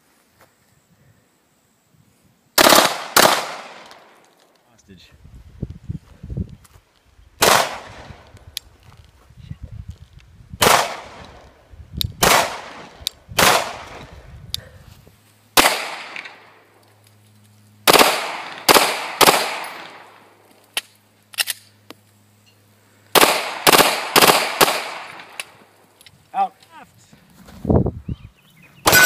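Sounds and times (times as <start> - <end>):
pistol shots echoing: 2.6 - 4.0, 7.4 - 8.0, 15.6 - 16.4, 17.9 - 20.2, 23.2 - 25.5.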